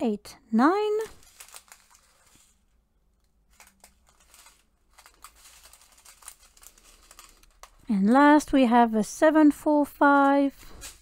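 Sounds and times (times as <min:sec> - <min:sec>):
plastic bags crinkling: 0:00.8 - 0:07.9.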